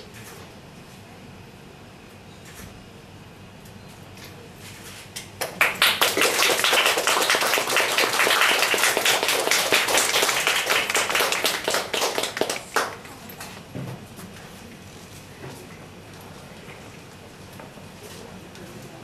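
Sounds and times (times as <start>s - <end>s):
audience clapping: 5.3s - 13.2s.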